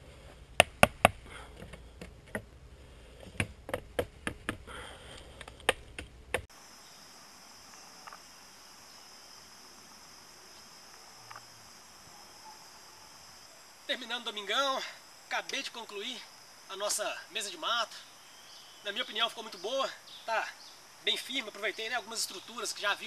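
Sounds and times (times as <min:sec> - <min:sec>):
bamboo poles knocking: 0:00.6 - 0:02.5, 0:03.2 - 0:04.7
high-pitched insect chorus: 0:06.5 - 0:23.0.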